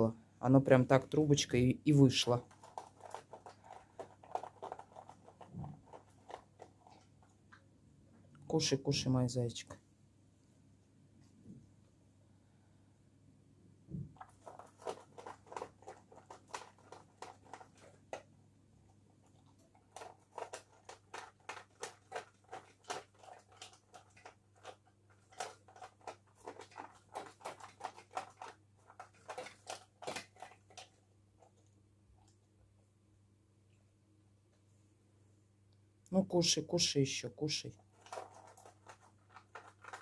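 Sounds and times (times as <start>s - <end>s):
dog crunching food: 2.4s - 7.4s, 14.2s - 18.3s, 19.2s - 31.6s, 37.9s - 40.0s.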